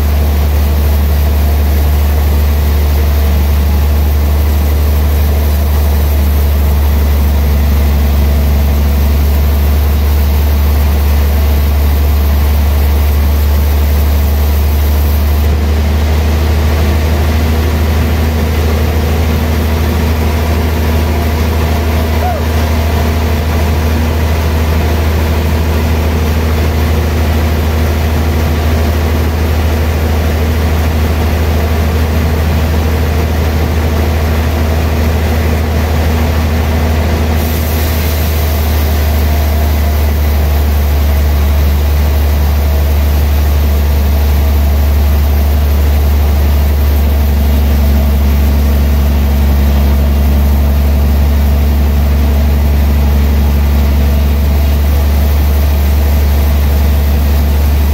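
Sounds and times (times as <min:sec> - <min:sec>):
band saw cutting log: 0:37.3 - 0:57.9.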